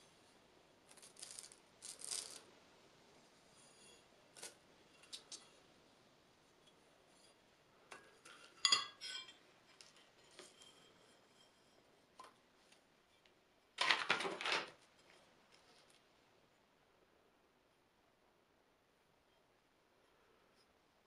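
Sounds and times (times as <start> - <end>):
rubbing and clattering handling noise: 7.0 - 16.1.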